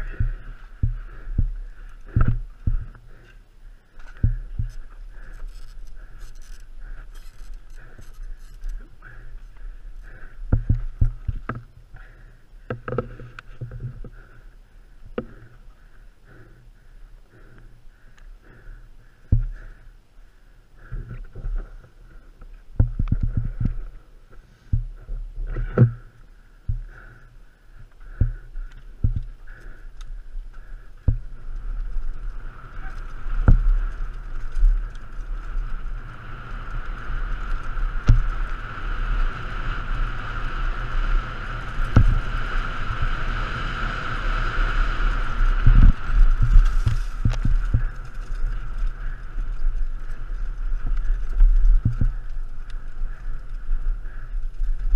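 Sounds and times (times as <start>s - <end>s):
sharp knocks over bumps: 0.0s - 3.0s, 10.5s - 11.7s, 22.8s - 23.8s, 28.0s - 29.4s, 33.4s - 33.8s, 41.9s - 42.2s
bike chain and frame rattling: 0.0s - 11.6s, 28.0s - 43.7s, 44.4s - 54.9s
high whine from bike: 22.9s - 54.9s.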